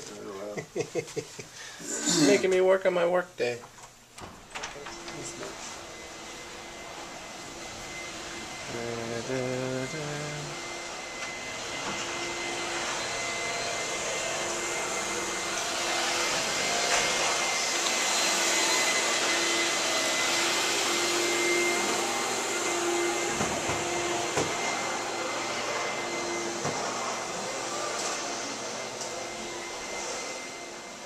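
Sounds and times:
thin high whine: 4.7 - 14.2.

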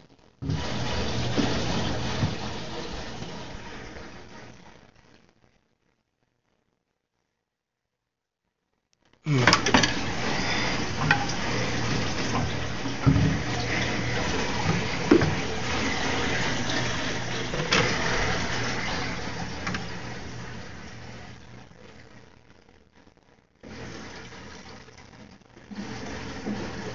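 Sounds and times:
water splashing and running: 0.4 - 4.6, 9.3 - 21.6, 23.6 - 26.9.

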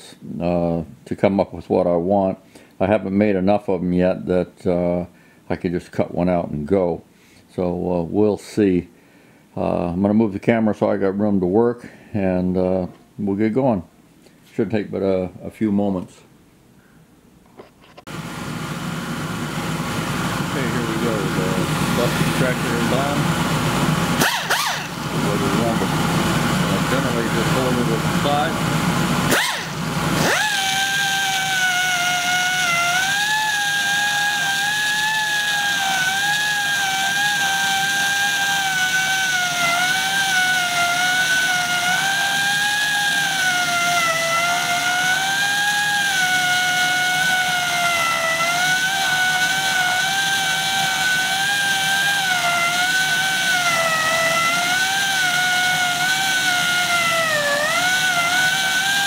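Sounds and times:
air die grinder whining: 18.1 - 59.0
burr carving wood: 29.3 - 59.0.

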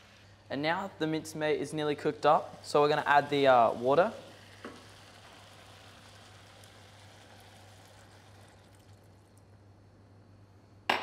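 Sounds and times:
meat sizzling in a pan: 1.8 - 9.3.

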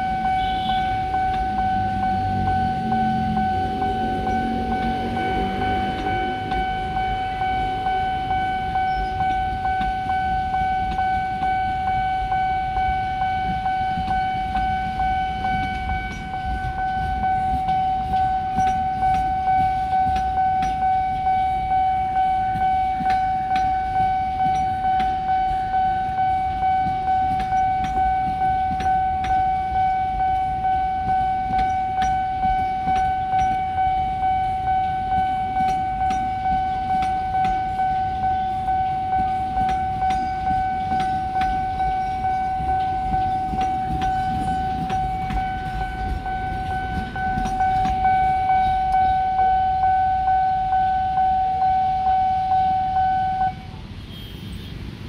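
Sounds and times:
level crossing alarm tone: 0.0 - 54.3
train coaches rumbling: 0.0 - 55.0
train wheels clattering over joints: 21.9 - 49.8.

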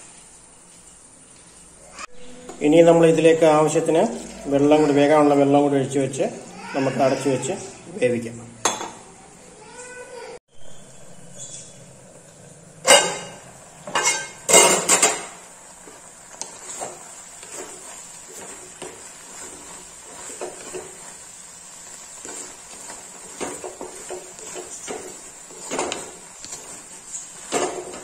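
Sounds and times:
wooden spatula stirring in pot: 2.4 - 7.8, 12.1 - 28.0.

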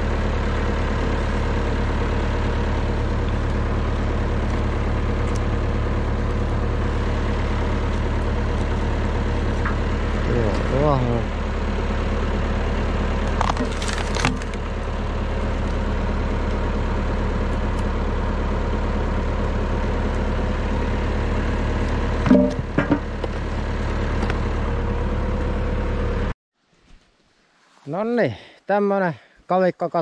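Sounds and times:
tractor engine running: 0.0 - 26.3
wood splitting cracks: 13.2 - 15.8.

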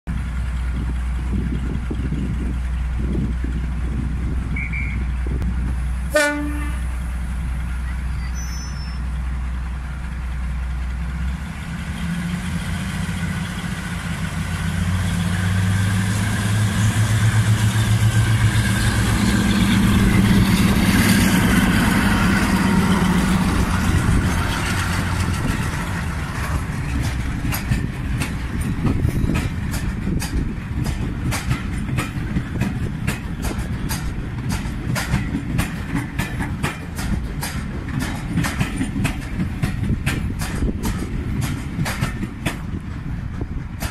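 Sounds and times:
diesel locomotive idling: 0.1 - 43.9
train horn toot: 6.1 - 7.0
carriages clattering over rail joints: 9.9 - 43.9.

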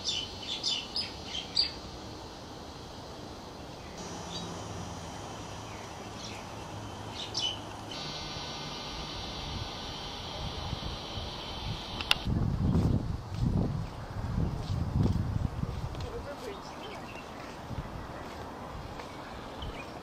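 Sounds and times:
small birds chirping: 0.0 - 1.9, 3.6 - 12.9, 16.2 - 20.0
outdoor background hum: 0.0 - 20.0.

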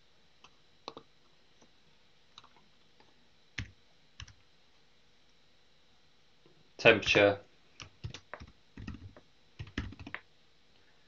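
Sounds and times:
quiet keyboard keystrokes: 2.4 - 4.4, 7.8 - 10.2.

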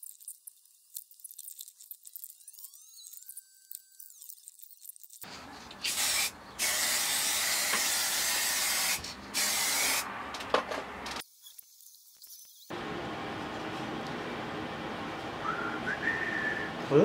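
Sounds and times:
aerosol can spraying: 5.8 - 10.0.

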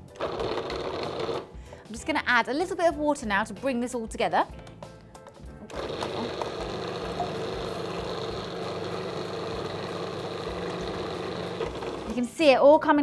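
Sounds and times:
food processor motor running: 0.2 - 1.5, 5.7 - 12.2.

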